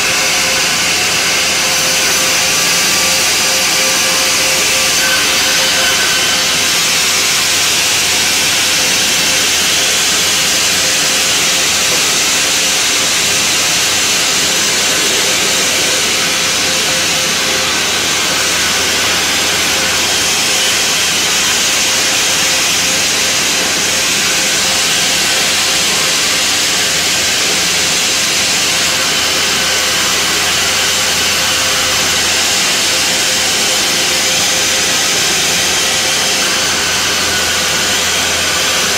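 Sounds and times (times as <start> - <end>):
band saw cutting planks: 0.0 - 38.9.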